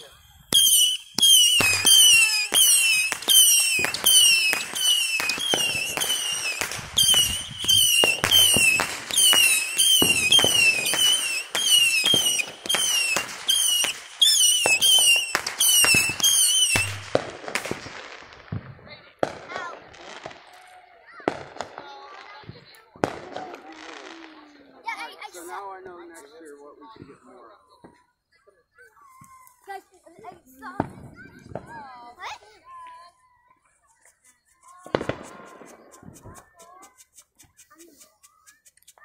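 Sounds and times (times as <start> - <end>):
fireworks going off: 0.0 - 26.0, 30.2 - 32.9, 33.9 - 39.0
whistle falling in pitch: 0.5 - 17.0.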